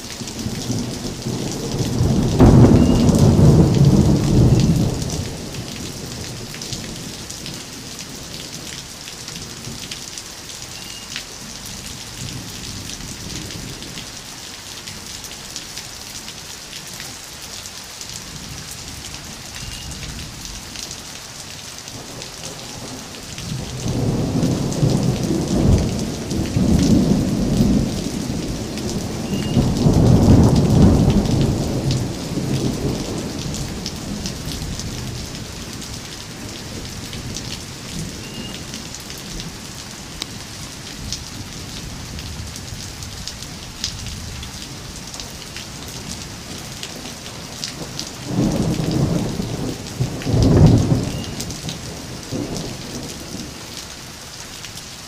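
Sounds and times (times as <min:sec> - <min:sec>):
rain falling: 0:00.0 - 0:55.0
thunder rumbling: 0:00.4 - 0:07.2, 0:22.0 - 0:39.6, 0:47.8 - 0:53.5.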